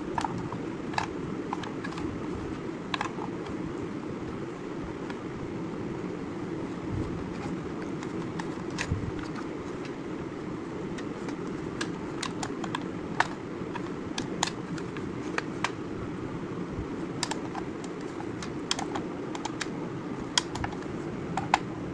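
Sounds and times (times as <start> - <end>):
low background hum: 0.0 - 21.9
plastic case clicking: 0.1 - 2.1, 2.9 - 3.6, 7.3 - 10.0, 10.9 - 15.8, 17.2 - 21.7.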